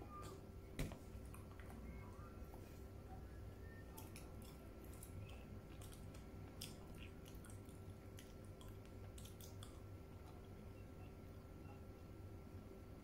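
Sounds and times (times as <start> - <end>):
chewing with lip smacks: 3.9 - 10.9.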